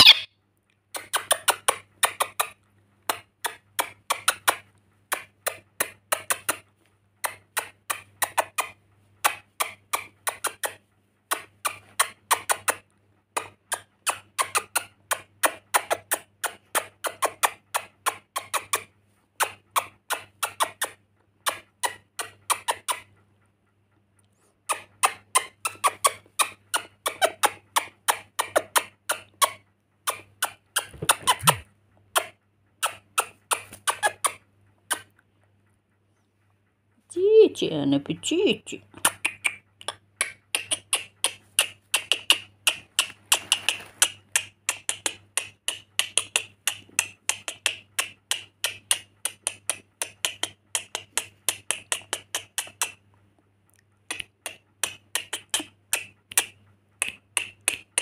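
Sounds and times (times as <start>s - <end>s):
lorikeet chattering squeaky clicks: 0.0s - 0.3s, 29.4s - 31.6s, 32.2s - 35.1s.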